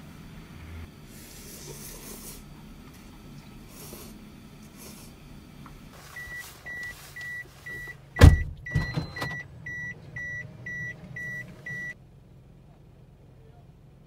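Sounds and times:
car warning chime beeping: 6.1 - 12.0
loud thump: 8.2 - 9.2.

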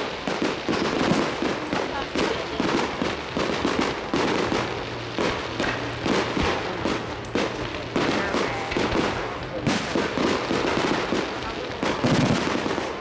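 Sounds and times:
fireworks bangs and crackling: 0.0 - 13.0.

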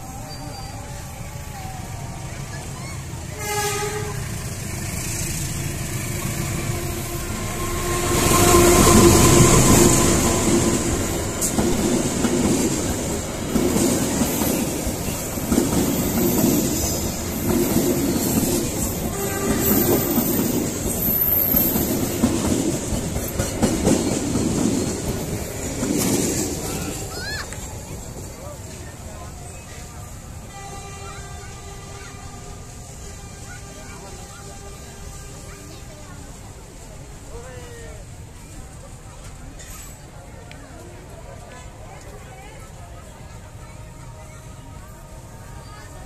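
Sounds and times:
passenger train passing: 0.0 - 46.0
train wheels clattering on rail joints: 8.9 - 29.0.

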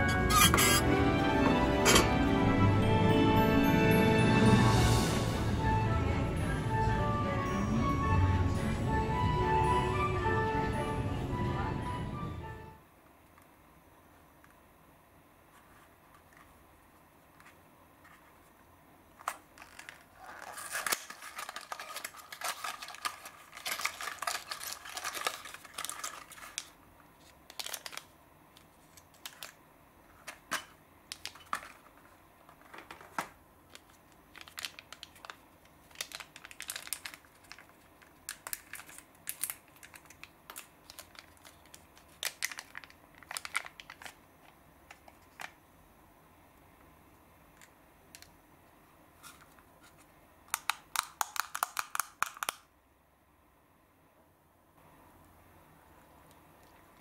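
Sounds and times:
paper packaging crinkling: 19.1 - 45.6.

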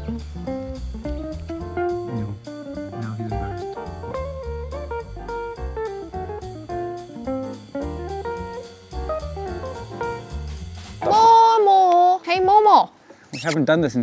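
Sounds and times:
jazzy plucked guitar melody: 0.0 - 11.1
steady drum beat: 0.0 - 11.1
bass: 0.0 - 11.8.

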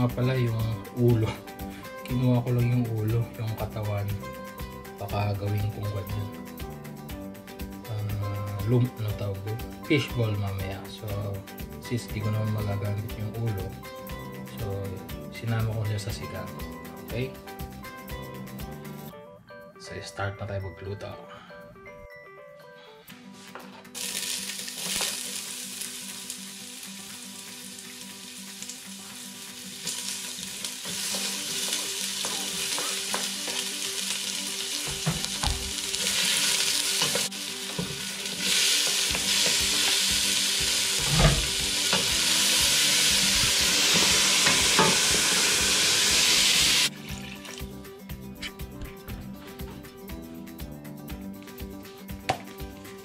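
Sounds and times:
onions sizzling in pot: 23.9 - 47.6.

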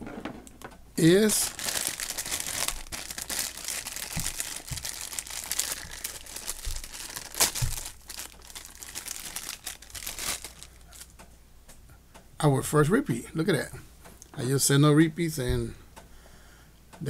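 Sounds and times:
foil bag crinkling: 1.0 - 11.1.

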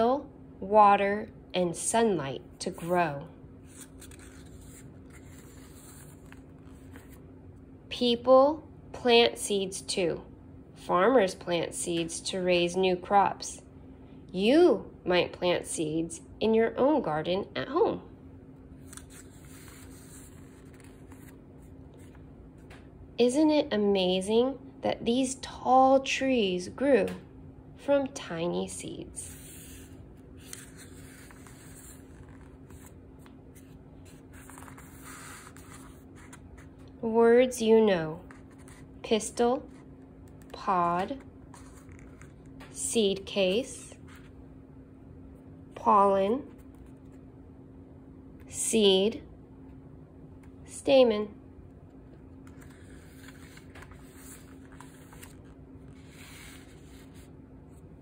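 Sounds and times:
faint steady hum: 0.0 - 58.0
paper page turning: 3.6 - 7.2, 18.8 - 22.2, 29.3 - 36.8, 41.5 - 42.5, 52.4 - 57.8.

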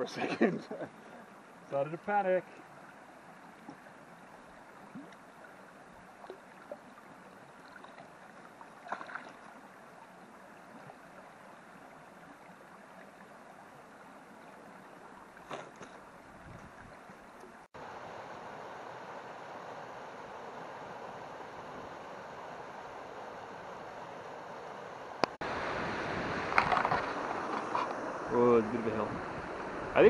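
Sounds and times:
steady rush of water: 0.0 - 30.0
stream flowing over rocks: 0.9 - 30.0
water bottle splashing in stream: 8.8 - 9.5.

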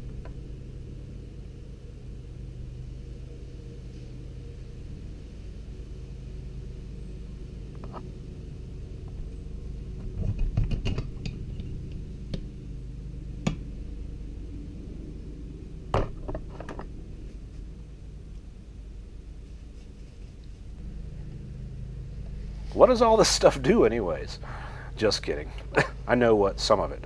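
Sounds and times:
steady low hum: 0.0 - 27.0
clunk with rattles: 10.0 - 11.7.

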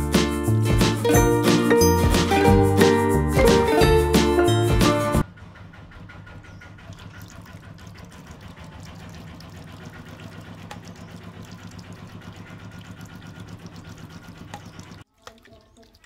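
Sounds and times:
fountain pump humming: 6.5 - 16.0.

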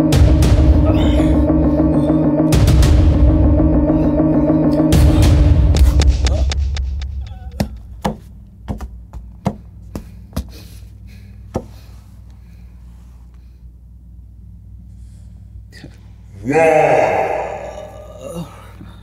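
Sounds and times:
low steady hum: 6.3 - 19.0.

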